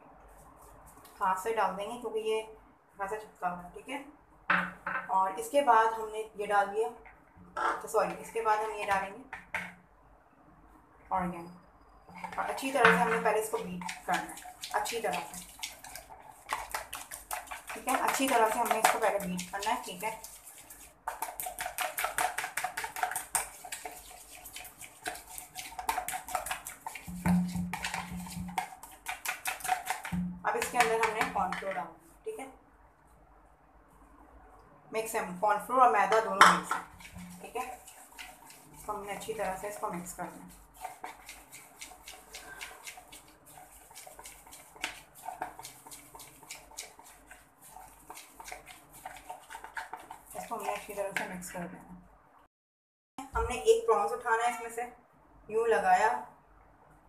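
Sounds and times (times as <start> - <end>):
egg mixture beaten in plastic bowl: 12.1 - 31.8, 35.6 - 51.6
hand squelching in batter: 13.6 - 30.1, 36.8 - 51.0.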